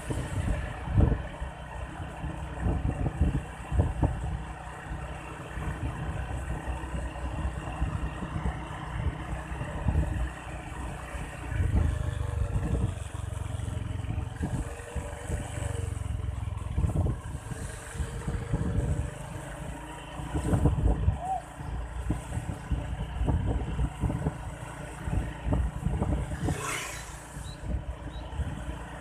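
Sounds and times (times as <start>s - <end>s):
heavy uneven low rumble: 0.0s - 19.2s
engine running: 0.0s - 29.0s.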